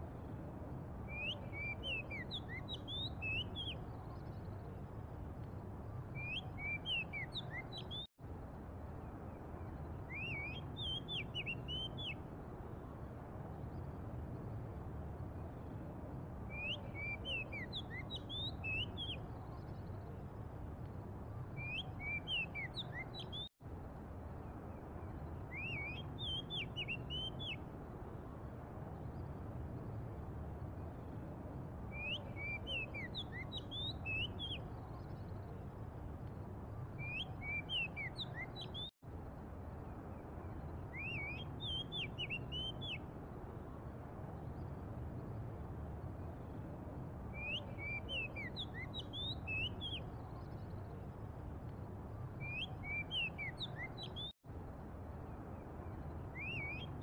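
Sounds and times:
bird whistling song: 1.1s - 4.2s, 6.1s - 8.1s, 10.0s - 12.2s, 16.5s - 20.0s, 21.5s - 23.5s, 25.4s - 27.6s, 31.9s - 35.5s, 37.0s - 38.9s, 40.7s - 43.0s, 47.3s - 50.9s, 52.3s - 54.3s, 56.2s - 57.0s.

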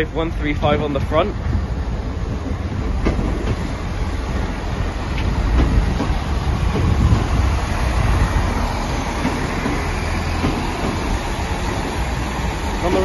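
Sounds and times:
diesel train rumble: 0.0s - 13.0s
wheel clicks over rail joints: 2.7s - 13.0s.

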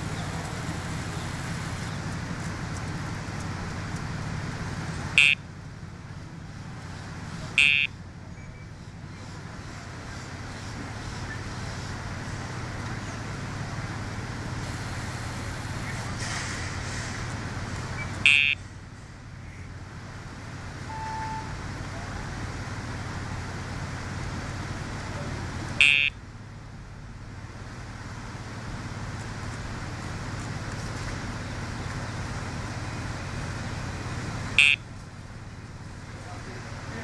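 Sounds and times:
traffic noise: 0.0s - 37.0s.

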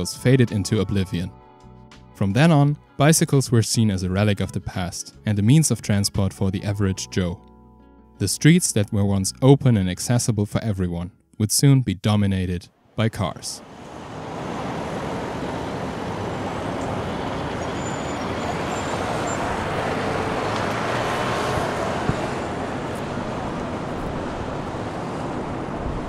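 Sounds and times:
road traffic: 12.7s - 13.0s, 13.6s - 26.0s.

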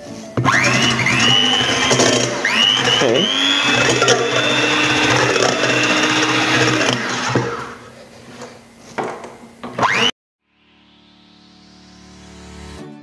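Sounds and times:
electric hand mixer whisking: 0.4s - 8.0s.

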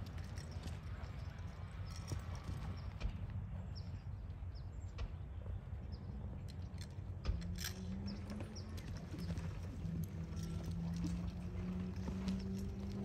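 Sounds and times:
horse hoofbeats on dirt: 0.0s - 4.0s, 7.2s - 13.0s.

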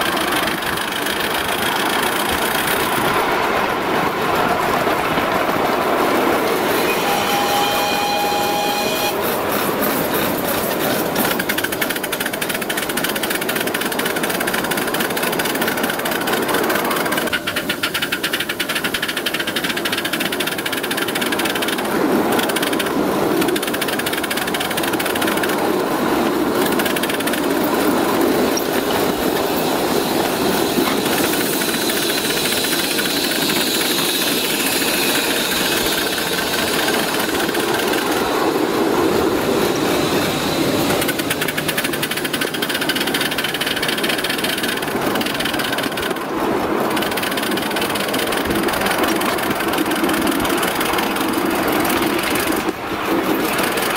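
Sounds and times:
steam locomotive running on rails: 0.0s - 53.9s.

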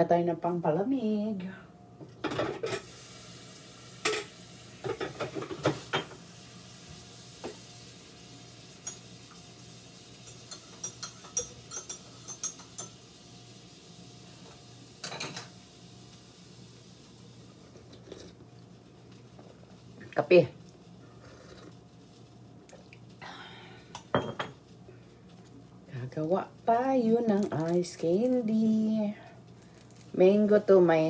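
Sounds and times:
steady low hum: 0.0s - 31.0s
kitchenware knocks and clinks: 24.2s - 24.6s.

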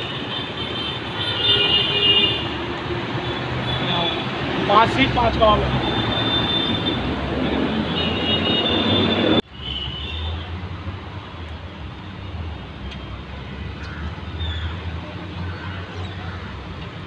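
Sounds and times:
loud traffic rush: 0.0s - 17.0s.

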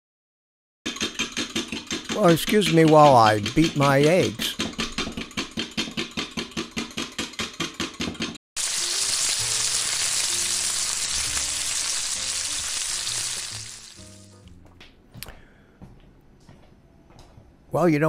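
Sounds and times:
fork beating eggs in glass cup: 0.9s - 7.6s
bacon sizzling in frying pan: 8.6s - 14.5s.

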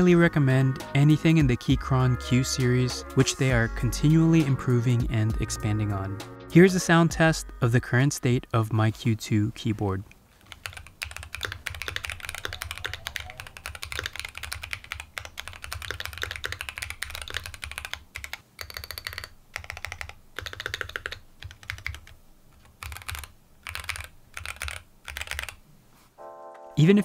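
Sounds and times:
typing on mechanical keyboard: 10.4s - 25.6s.

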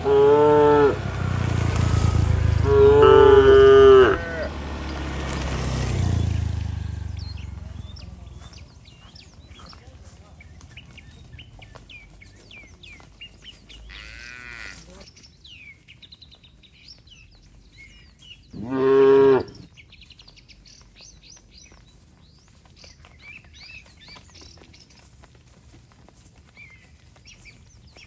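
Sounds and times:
cow mooing: 0.0s - 1.1s, 2.0s - 4.6s, 13.9s - 14.9s, 18.6s - 19.7s.

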